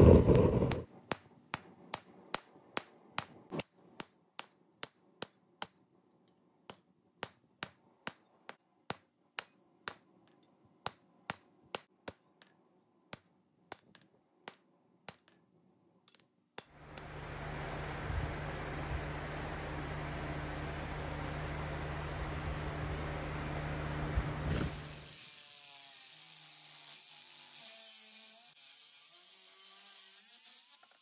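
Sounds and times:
hammer striking metal on anvil: 0.2 - 6.0, 6.7 - 12.5, 13.1 - 17.3
steady hiss with low hum: 16.9 - 24.8.

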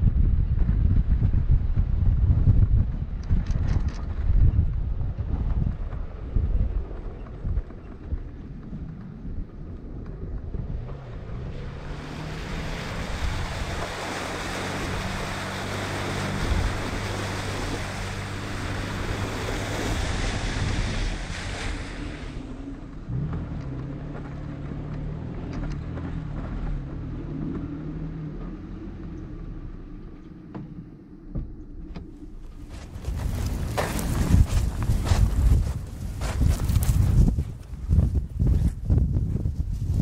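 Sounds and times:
tyres on dirt road: 0.0 - 40.0
water splashing off tyres: 11.3 - 30.0
vehicle engine running: 22.0 - 40.0.

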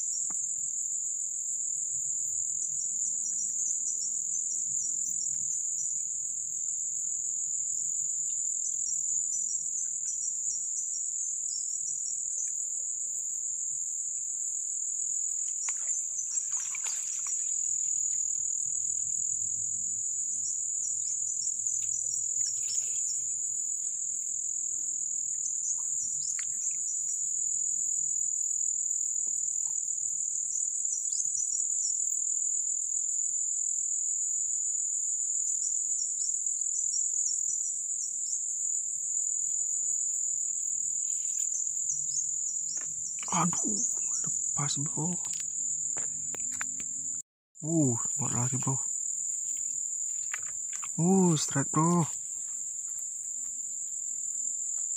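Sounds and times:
high-pitched insect chorus: 0.0 - 54.9.

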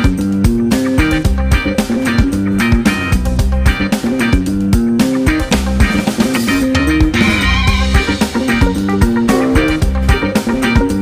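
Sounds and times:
bass: 0.0 - 11.0
plucked guitar: 9.0 - 11.0
steady beat: 9.2 - 10.6.

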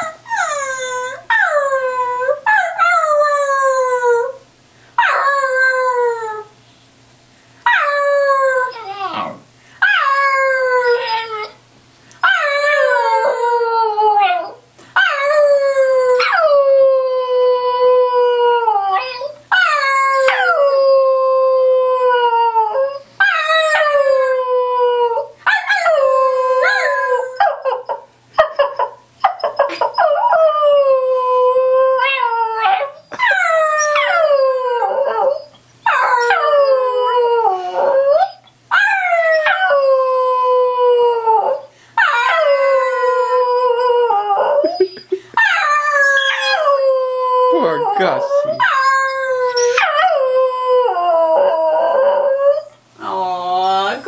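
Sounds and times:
dog howling: 7.7 - 11.6, 12.2 - 44.8, 45.5 - 52.7.

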